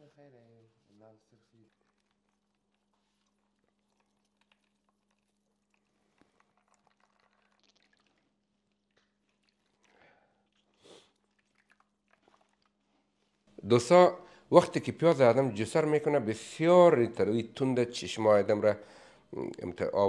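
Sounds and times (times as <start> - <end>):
wet squelches: 1.4 - 13.6.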